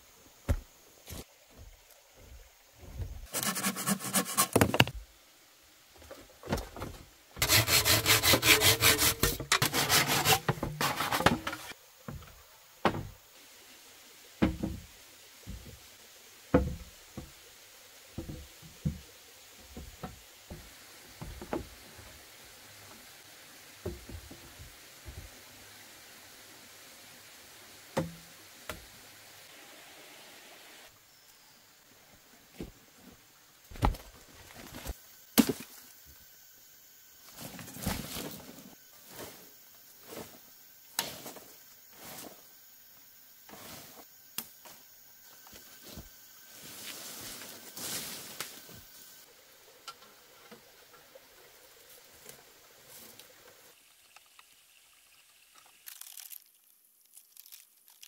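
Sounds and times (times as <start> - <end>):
wooden knocks of logs: 4.4 - 5.0, 6.0 - 7.1, 10.5 - 13.2, 14.4 - 14.9, 16.5 - 17.4, 33.7 - 35.7
rustling of dry leaves: 37.2 - 42.6, 45.2 - 49.3, 50.1 - 58.0.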